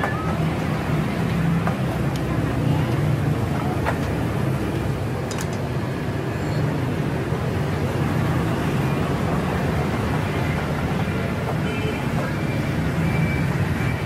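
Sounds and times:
street traffic din: 0.0 - 14.0.

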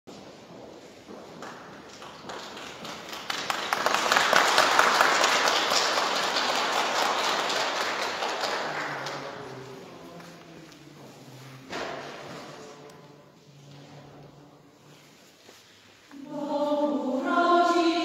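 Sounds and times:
audience applauding: 1.4 - 9.8.

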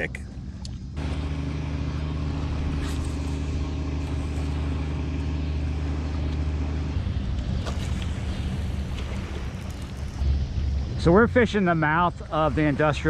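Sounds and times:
low engine drone: 0.0 - 13.0.

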